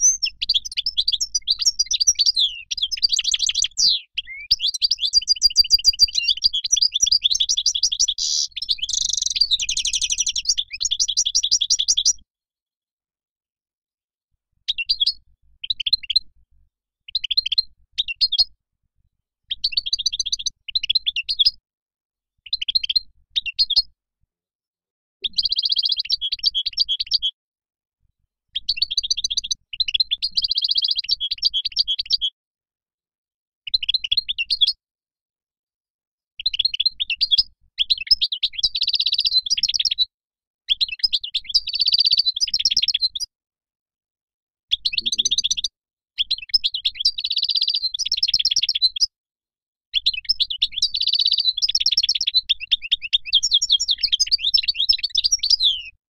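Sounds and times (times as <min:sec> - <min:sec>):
goldfinch singing: 0:00.0 - 0:12.2, 0:25.3 - 0:27.3, 0:28.6 - 0:32.3, 0:36.4 - 0:40.0, 0:40.7 - 0:43.2, 0:44.7 - 0:49.0, 0:50.0 - 0:56.0.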